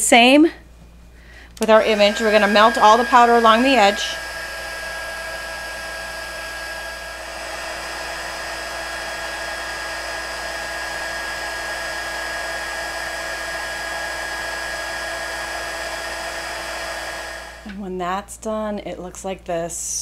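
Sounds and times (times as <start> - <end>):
heat tool fan hissing and whining: 0.0 - 17.8.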